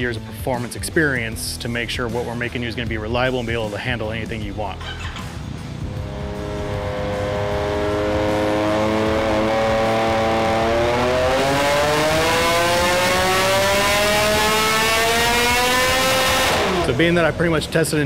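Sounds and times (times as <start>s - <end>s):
engine revving under load: 5.0s - 17.7s.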